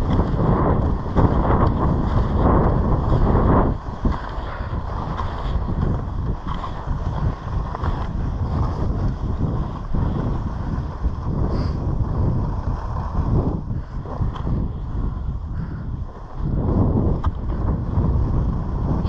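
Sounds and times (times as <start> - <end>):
wind buffeting microphone: 0.0 - 19.0
skis hissing over snow: 0.2 - 14.6.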